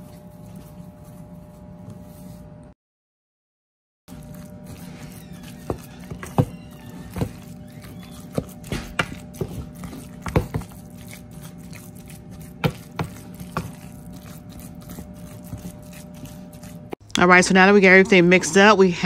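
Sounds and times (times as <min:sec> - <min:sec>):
mixture stirred in bowl: 0:04.1 - 0:18.7.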